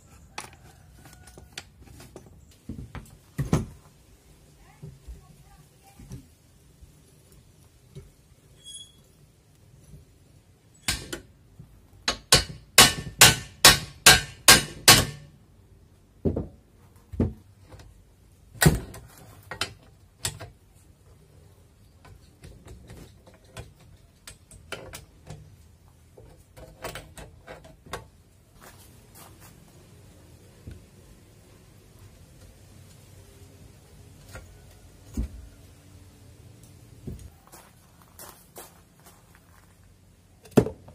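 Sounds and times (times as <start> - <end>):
hammer striking metal: 12.1 - 15.3.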